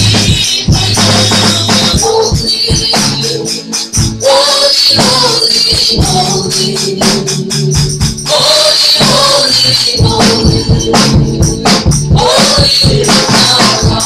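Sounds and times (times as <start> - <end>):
backing instruments: 0.0 - 14.0
steady percussion beat: 0.0 - 14.0
women singing gospel: 0.0 - 14.0.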